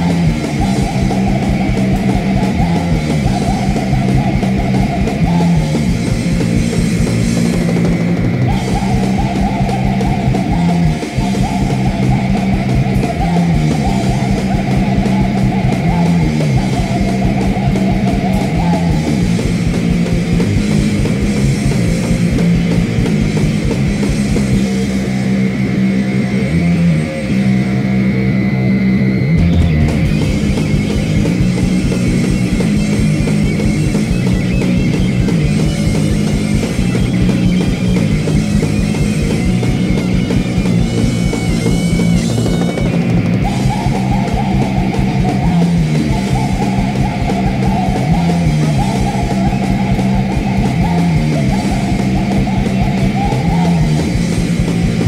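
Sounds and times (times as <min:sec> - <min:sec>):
distorted electric guitar: 0:00.0 - 0:55.0
fast driving drums: 0:00.0 - 0:55.0.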